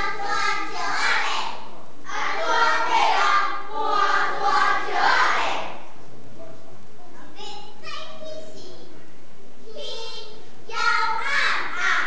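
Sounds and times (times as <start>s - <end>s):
children chanting in unison: 0.0s - 5.9s, 9.8s - 12.0s.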